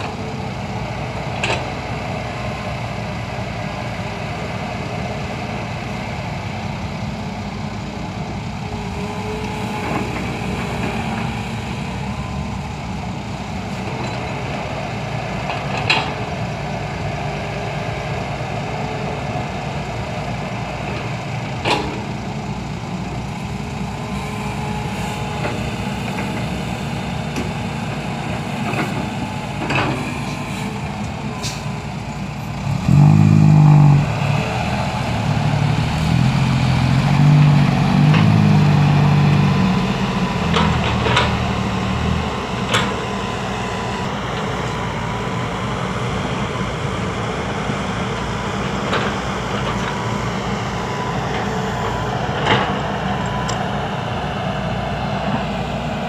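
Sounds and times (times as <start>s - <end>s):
heavy diesel engines running: 0.0s - 56.0s
engine revving: 32.4s - 44.2s.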